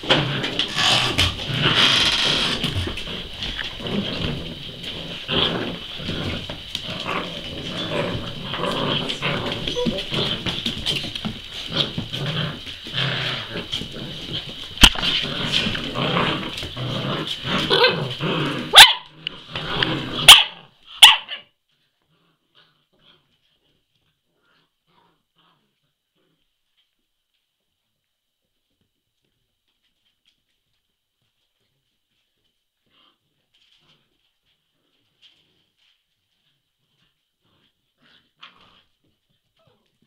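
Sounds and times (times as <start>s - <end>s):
puppies barking and growling: 0.0s - 21.5s.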